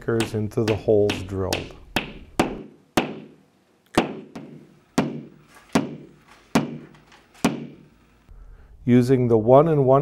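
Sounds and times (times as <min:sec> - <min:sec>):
hammer tapping wall anchors: 0:00.0 - 0:07.9.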